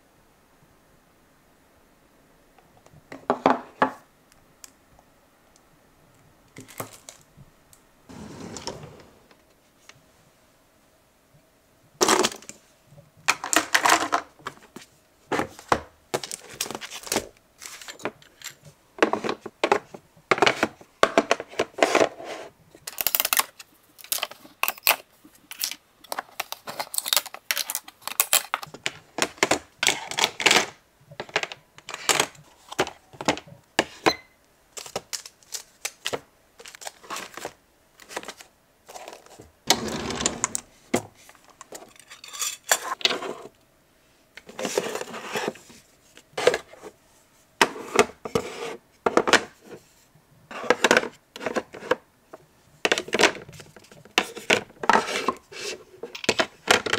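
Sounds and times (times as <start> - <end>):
drawer sliding open: 8.1 - 9.4, 39.7 - 40.8.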